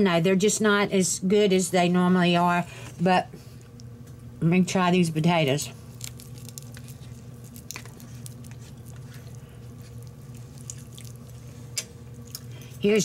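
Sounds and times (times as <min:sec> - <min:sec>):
steady low hum: 0:00.0 - 0:13.0
chewing: 0:05.9 - 0:12.8.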